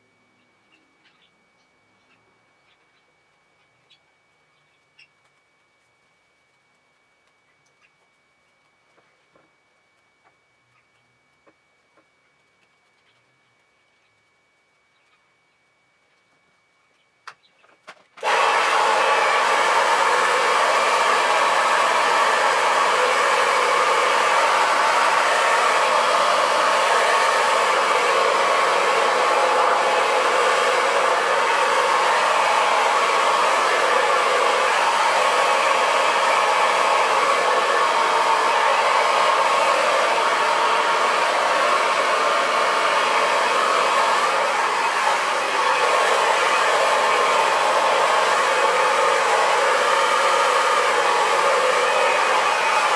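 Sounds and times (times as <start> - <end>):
blow dryer running: 18.2 - 52.9.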